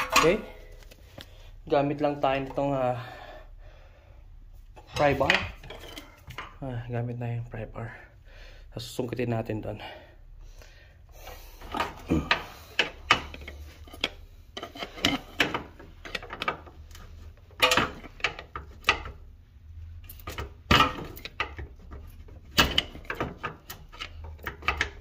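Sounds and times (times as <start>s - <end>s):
pry bar scraping metal: 11.7s - 16.6s
metallic clicks and knocks: 17.6s - 19.2s.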